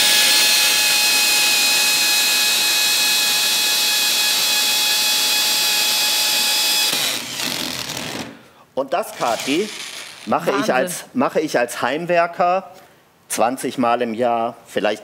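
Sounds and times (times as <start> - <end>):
electric drill hammer drilling: 0.0 - 8.3, 9.1 - 10.6.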